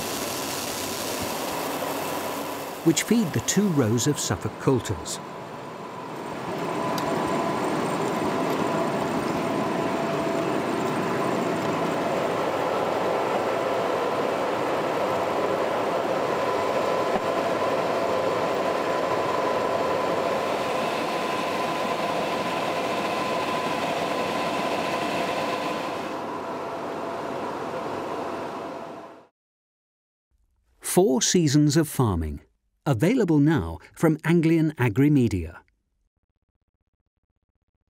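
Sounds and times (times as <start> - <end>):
tractor machinery drone: 0.0 - 29.2
steady machinery whine: 0.0 - 29.3.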